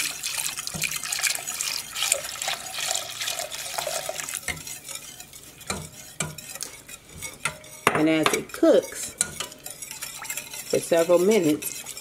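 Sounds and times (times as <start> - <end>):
milk pouring: 0.0 - 4.5
whisk scraping a metal pot: 0.0 - 12.0.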